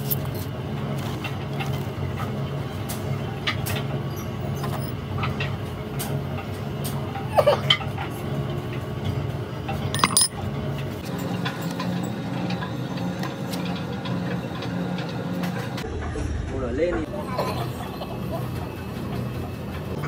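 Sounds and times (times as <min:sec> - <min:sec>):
ringing metallic clink: 0:10.0 - 0:10.4.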